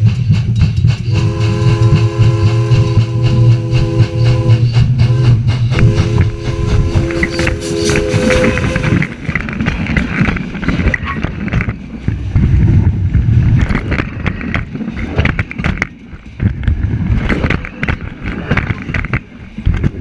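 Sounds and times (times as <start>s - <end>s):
steel wheels rumbling on rails: 0.0s - 20.0s
wheels clacking and clanking: 0.0s - 20.0s
steam locomotive whistle: 1.1s - 9.2s.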